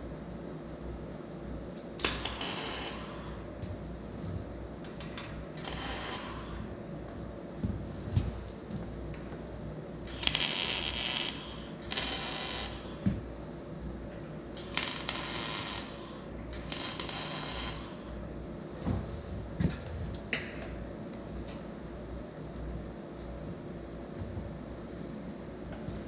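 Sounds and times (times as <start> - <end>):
welding arc crackling hiss: 2.0 - 3.5, 5.6 - 6.7, 10.0 - 13.2, 14.6 - 18.2.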